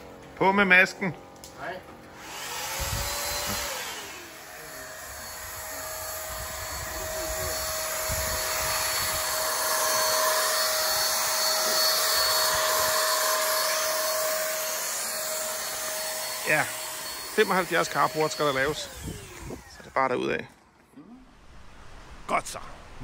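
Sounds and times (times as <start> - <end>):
electric paint sprayer whining hiss: 2.1 - 20.0.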